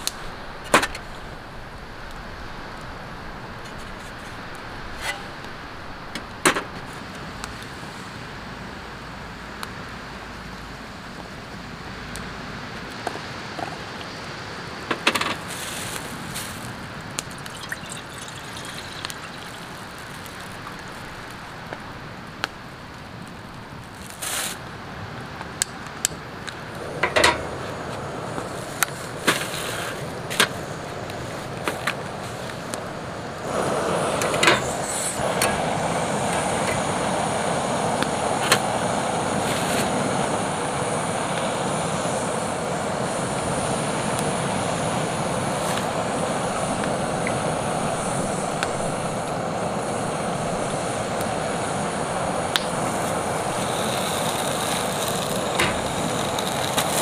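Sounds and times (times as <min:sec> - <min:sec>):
steady background hiss: 0:00.0 - 0:57.0.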